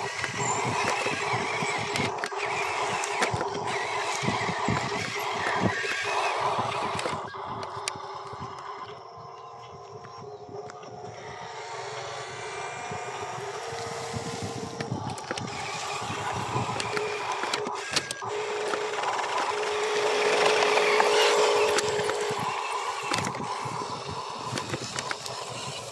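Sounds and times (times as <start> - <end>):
sharp clicks: 0.0 - 9.0, 14.7 - 25.9
electric motor whining: 0.0 - 25.9.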